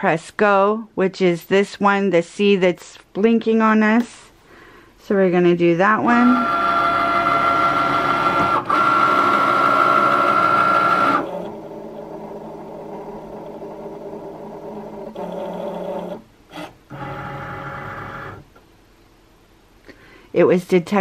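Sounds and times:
cutting machine motors whining: 6.1 - 18.4.

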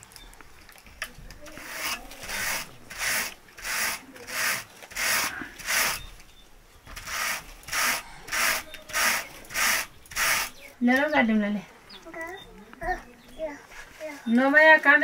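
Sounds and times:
wool card scratching strokes: 1.5 - 6.1, 7.0 - 10.6.

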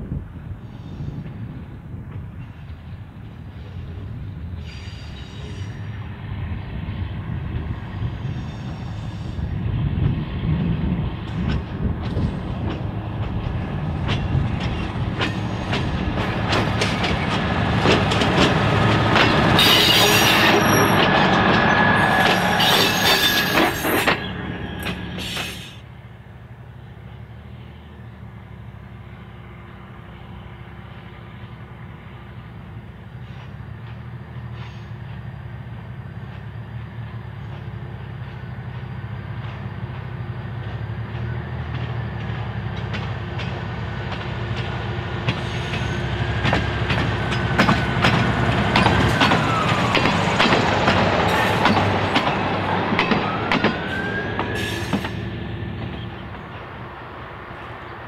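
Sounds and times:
diesel railcar passing: 0.0 - 58.0
distant railcar hum: 0.0 - 58.0
high wheel squeal: 4.6 - 5.9, 19.6 - 25.8, 53.1 - 55.3.

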